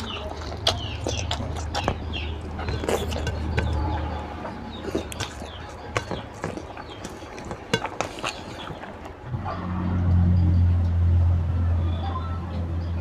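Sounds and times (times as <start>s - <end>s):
lip and tongue smacks: 0.0s - 4.1s, 4.7s - 9.2s
wet chewing: 0.0s - 10.2s.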